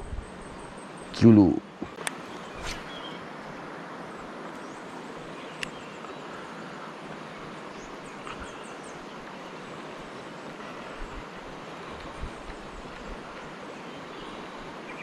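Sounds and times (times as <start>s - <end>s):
river background noise: 0.0s - 15.0s
faint high ticks: 5.6s - 5.8s.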